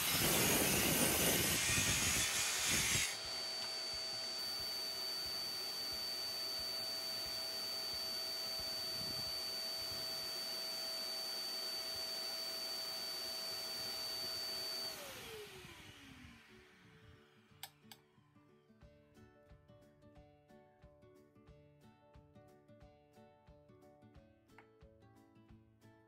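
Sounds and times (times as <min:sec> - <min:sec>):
dust extractor running: 0:00.0 - 0:16.6
motor winding down whine: 0:00.0 - 0:17.9.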